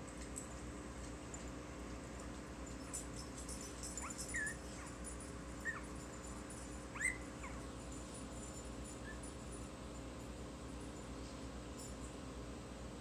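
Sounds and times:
puppies squeaking and whimpering: 3.9 - 5.0, 5.6 - 6.0, 6.9 - 7.7.

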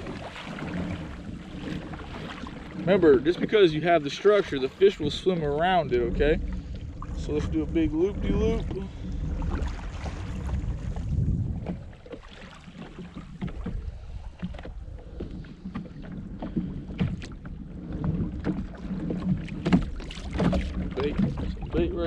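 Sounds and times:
water lapping against kayak hull: 0.0 - 22.0
wind rumble on microphone: 0.0 - 22.0.

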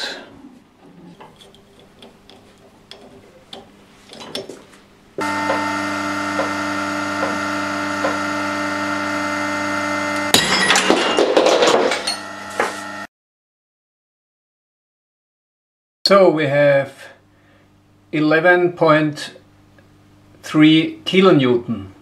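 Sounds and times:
machine humming: 5.0 - 10.4, 11.9 - 13.1
loud crackling grinding: 5.2 - 10.3.

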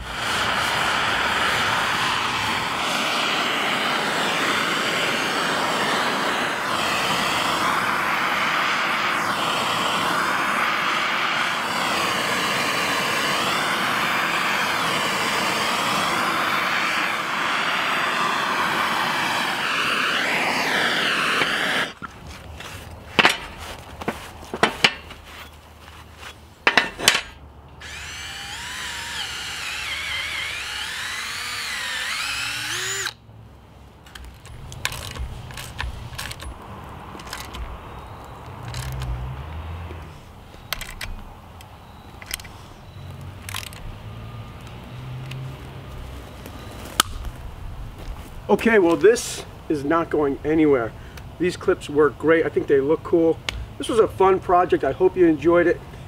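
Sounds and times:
torch flame rushing: 0.0 - 25.6, 26.6 - 33.2, 34.0 - 41.4
sharp metallic clanks: 23.2 - 23.6, 24.6 - 25.2, 26.6 - 27.4.

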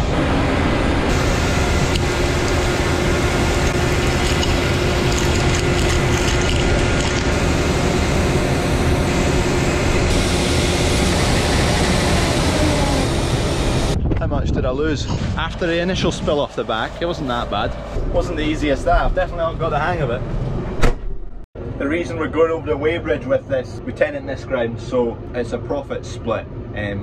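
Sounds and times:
combine harvester running: 0.0 - 14.0, 15.0 - 20.6.

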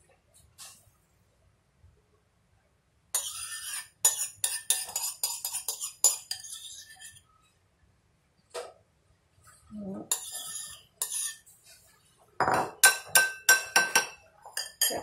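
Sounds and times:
metal spoon scraping a bowl: 3.2 - 7.2, 10.1 - 11.8, 12.7 - 15.0.

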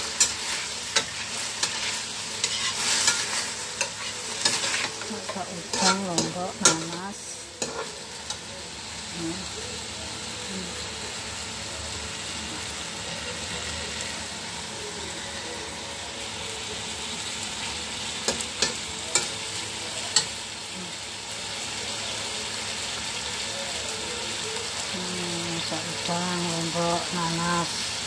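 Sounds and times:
food sizzling in a wok: 0.0 - 28.0
tongs clicking against wok: 5.7 - 7.0, 7.6 - 8.5, 18.3 - 19.4, 20.1 - 20.4.

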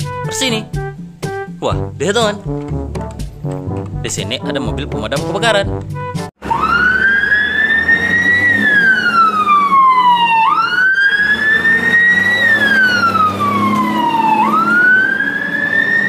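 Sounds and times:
truck engine and road noise: 0.0 - 16.0
fire engine siren wailing: 6.4 - 16.0.

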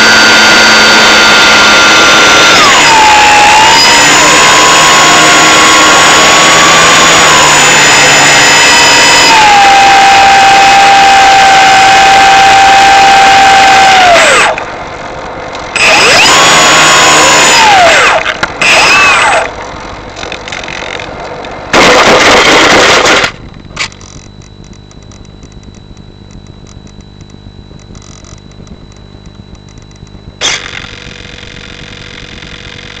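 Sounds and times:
rushing noise with rising whine: 0.0 - 33.0
brief loud burst: 21.7 - 23.4.

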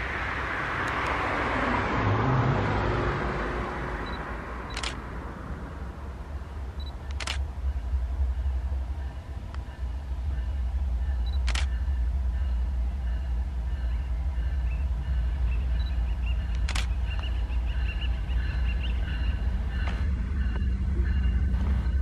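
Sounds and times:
locomotive engine rumble: 0.0 - 22.0
sharp clicks: 0.8 - 1.2, 4.0 - 5.0, 6.8 - 7.5, 11.3 - 11.8, 15.8 - 17.4.

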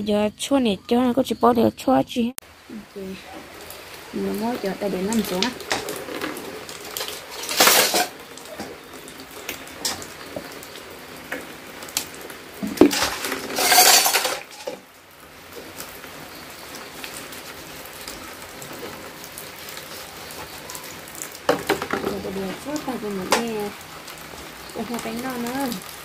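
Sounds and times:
crockery clinking: 12.9 - 14.8.

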